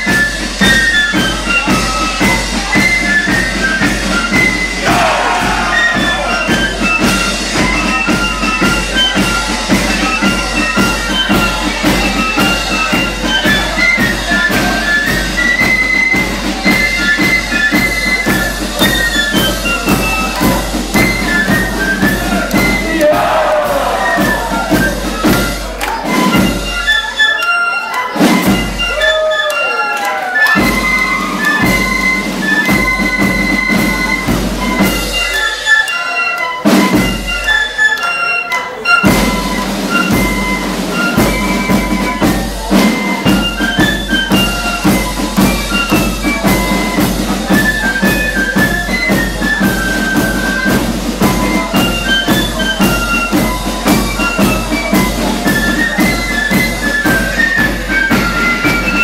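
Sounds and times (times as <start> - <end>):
flutes playing melody: 0.0 - 59.0
snare drums: 0.0 - 59.0
bass drum: 4.4 - 14.8.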